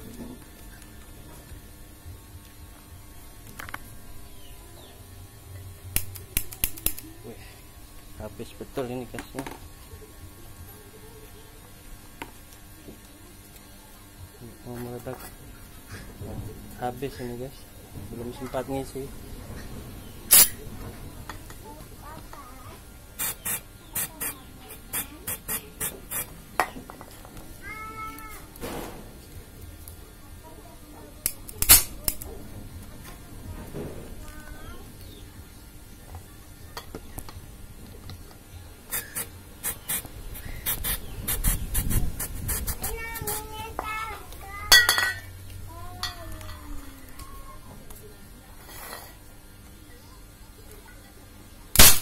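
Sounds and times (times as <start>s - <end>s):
gas hissing squirts: 20.3s - 20.6s, 23.2s - 26.4s, 38.9s - 43.4s.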